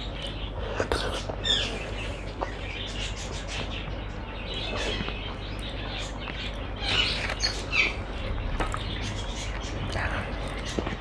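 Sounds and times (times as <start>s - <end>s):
chewing with wet mouth clicks: 9.5s - 11.0s.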